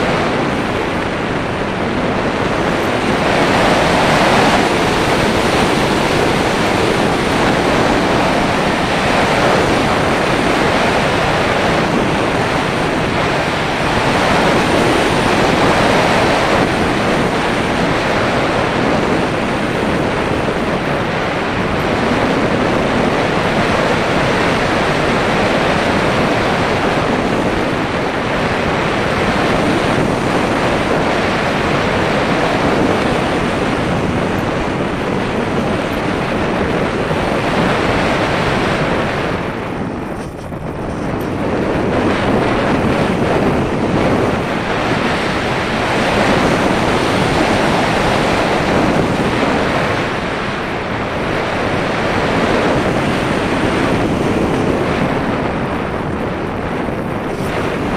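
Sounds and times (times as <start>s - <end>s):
wind noise on microphone: 0.0s - 57.9s.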